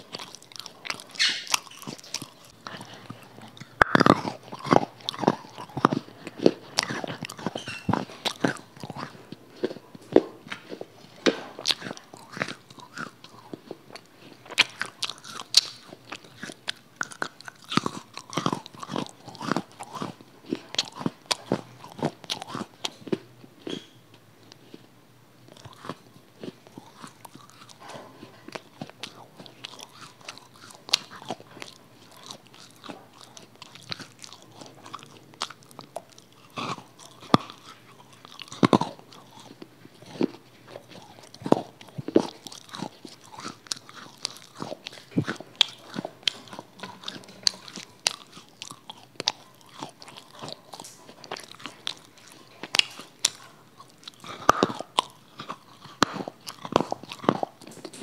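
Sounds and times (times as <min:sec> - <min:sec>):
mouth smacks: 0:00.0 - 0:18.2
mouth crunching and chewing: 0:00.0 - 0:58.0.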